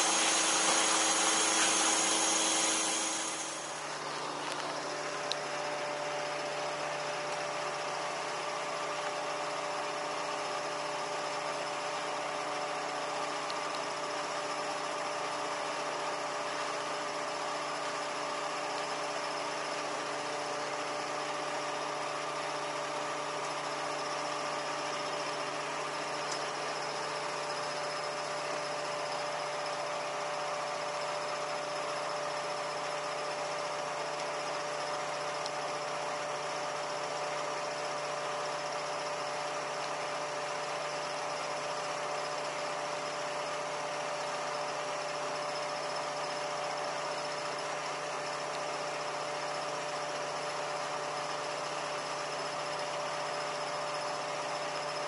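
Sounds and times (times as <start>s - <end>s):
ladder lift mechanical hum: 0.0s - 8.2s
held whining tones: 0.0s - 9.6s.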